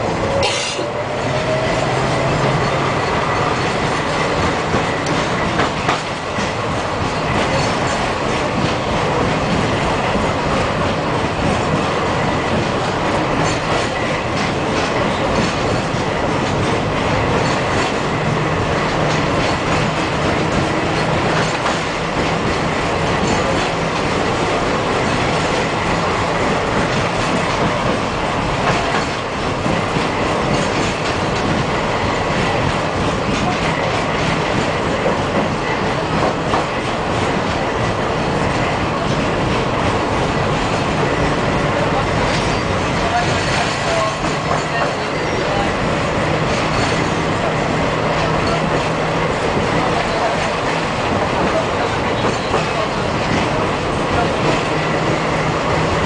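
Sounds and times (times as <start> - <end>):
tram wheels rumbling on rails: 0.0 - 56.0.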